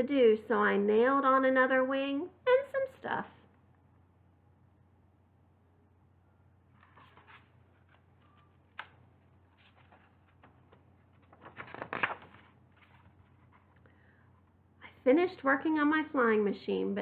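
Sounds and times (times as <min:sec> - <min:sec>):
page turning: 0:06.7 - 0:13.8
paper pages rustling: 0:06.7 - 0:13.8.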